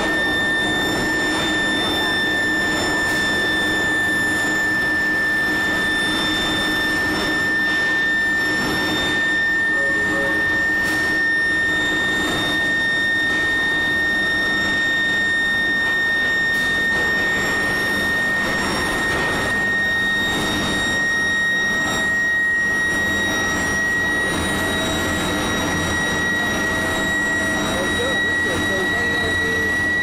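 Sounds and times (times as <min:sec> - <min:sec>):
high-pitched machine whine: 0:00.0 - 0:30.0
machinery noise: 0:05.0 - 0:11.4, 0:24.4 - 0:30.0
low hum: 0:09.4 - 0:10.8.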